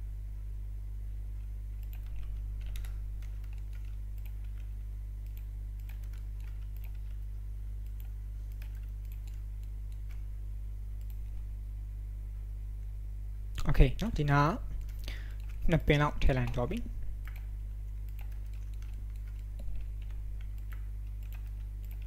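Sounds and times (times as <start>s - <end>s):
low electrical hum: 0.0s - 22.0s
keyboard keys tapping: 1.8s - 7.2s, 18.1s - 22.0s.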